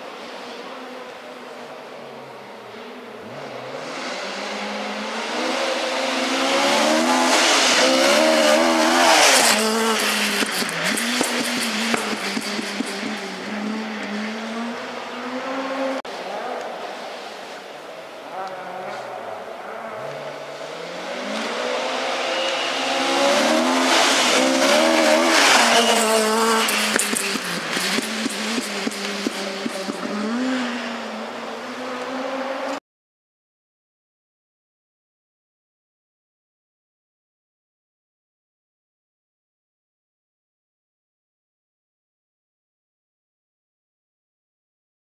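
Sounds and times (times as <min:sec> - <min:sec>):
rally car engine revving past: 0:00.0 - 0:32.8.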